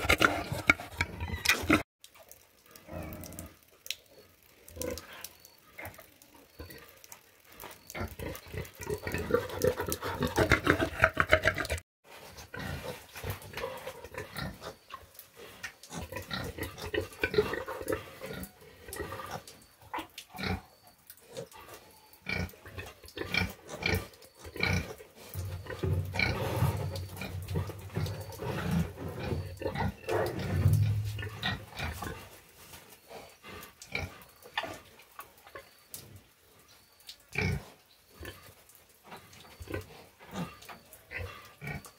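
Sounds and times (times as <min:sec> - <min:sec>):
pigs grunting: 0:08.0 - 0:11.8.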